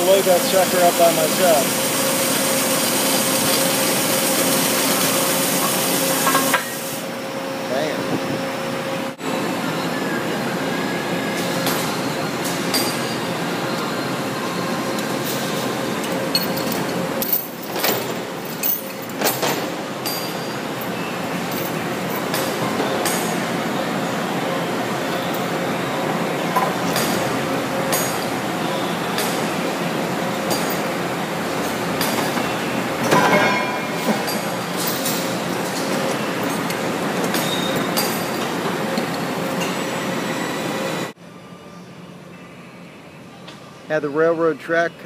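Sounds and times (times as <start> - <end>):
steel shop noise: 0.0 - 41.2
metallic clanks of chain: 16.3 - 20.5.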